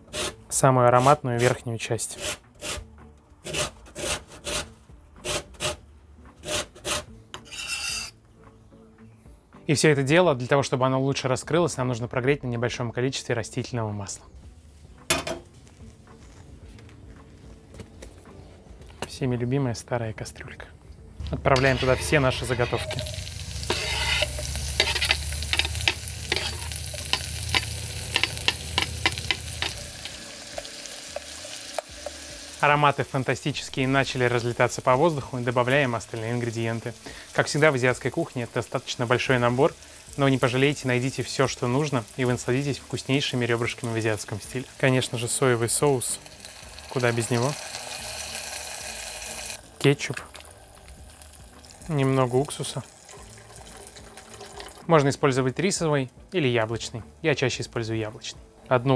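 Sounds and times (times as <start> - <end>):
peel rasping on a grater: 6.4 - 8.1
vegetables sizzling in hot oil: 21.6 - 33.1, 33.8 - 54.8
utensil clicking against pot: 23.7 - 32.2.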